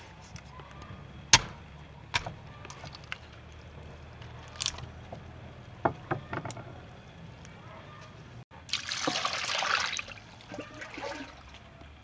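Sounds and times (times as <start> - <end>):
cleaver chopping on wooden block: 1.3 - 2.3.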